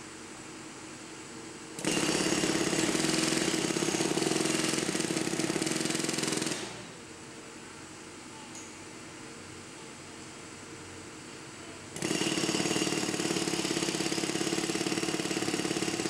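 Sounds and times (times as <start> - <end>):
jackhammer breaking concrete: 1.8 - 6.9, 12.0 - 16.0.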